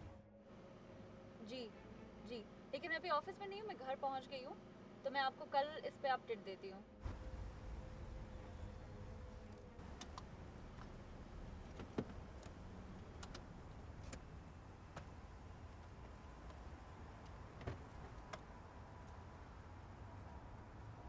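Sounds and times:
light clicks and ticks: 11.7 - 14.2.

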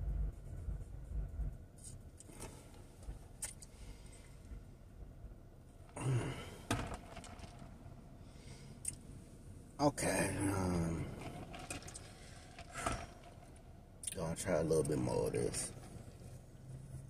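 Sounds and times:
low car cabin rumble: 0.0 - 8.2.

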